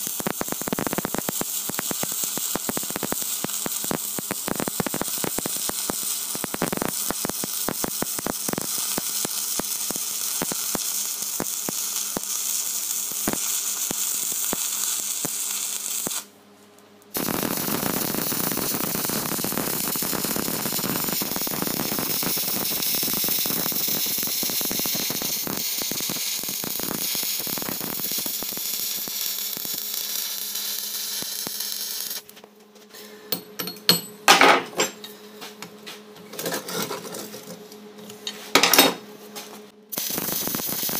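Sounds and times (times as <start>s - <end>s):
arc welding crackling: 0.0s - 16.4s, 17.0s - 32.4s, 39.9s - 40.9s.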